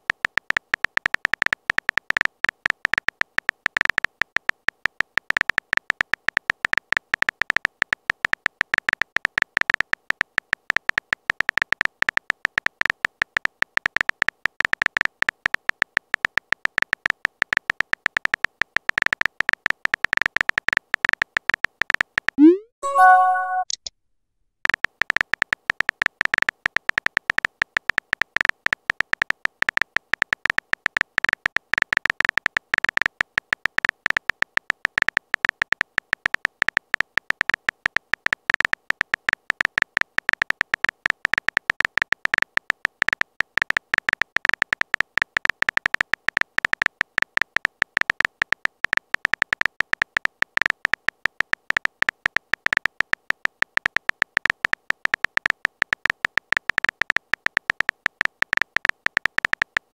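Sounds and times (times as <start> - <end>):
short high-pitched typing beeps: 22.4 - 23.9.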